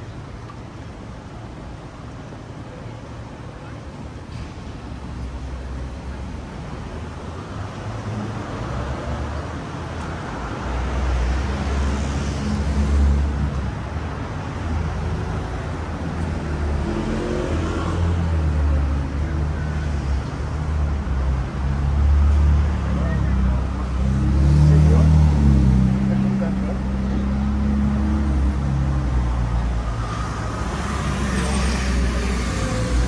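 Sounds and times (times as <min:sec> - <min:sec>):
motor vehicles passing: 0:07.0 - 0:33.0.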